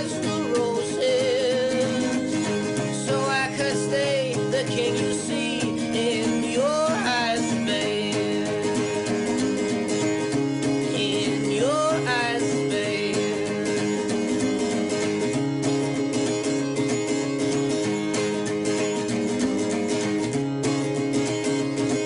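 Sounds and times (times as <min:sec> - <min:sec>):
folk song with acoustic guitar: 0:00.0 - 0:22.0.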